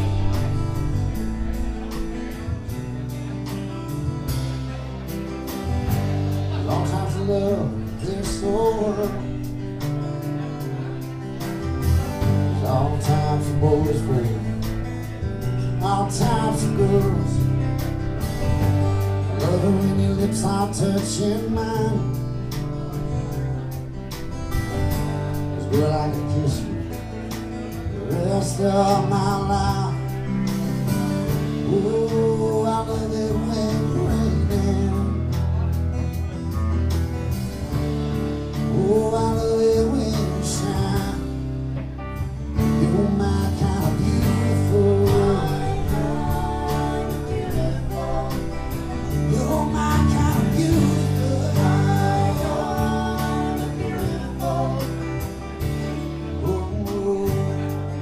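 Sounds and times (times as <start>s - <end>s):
acoustic and electric guitars: 0.0s - 58.0s
bass guitar: 0.0s - 58.0s
person singing: 6.0s - 35.8s, 38.5s - 41.5s, 42.6s - 58.0s.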